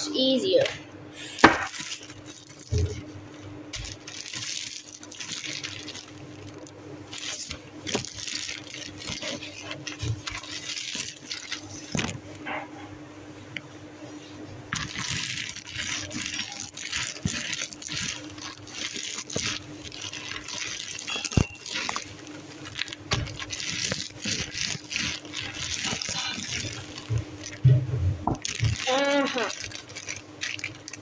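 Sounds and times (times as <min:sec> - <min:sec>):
plastic bag crinkling: 0:01.2 - 0:12.4, 0:14.7 - 0:31.0
snack puffs crunching: 0:03.7 - 0:12.2, 0:14.8 - 0:27.7, 0:28.4 - 0:31.0.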